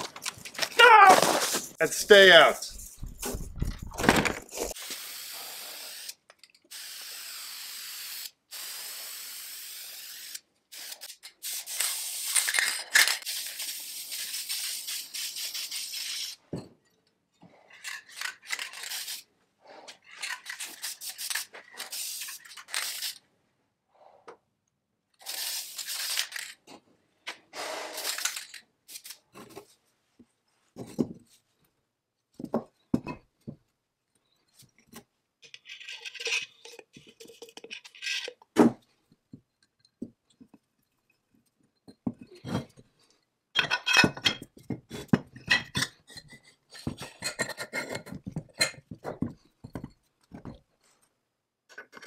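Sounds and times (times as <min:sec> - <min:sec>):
aerosol spray can hissing: 0:04.8 - 0:12.5, 0:13.3 - 0:16.4.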